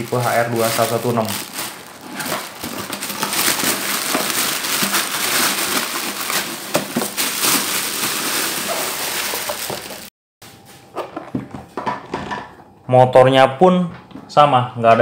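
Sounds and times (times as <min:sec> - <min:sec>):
plastic bag rustling and crinkling: 0:00.0 - 0:10.1.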